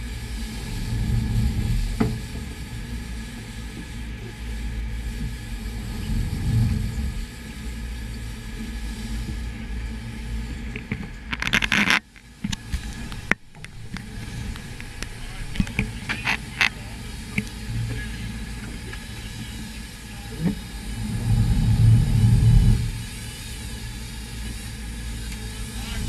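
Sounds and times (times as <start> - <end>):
boat engines rumbling: 0.0 - 26.0
wind-blown sea: 0.0 - 26.0
sharp clicks and knocks: 10.7 - 16.8.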